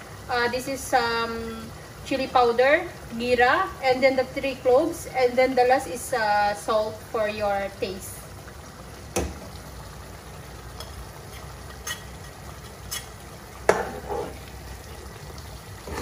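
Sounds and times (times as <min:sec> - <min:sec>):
curry simmering and sizzling: 0:00.0 - 0:16.0
metal spoon scraping a plate: 0:11.8 - 0:13.1.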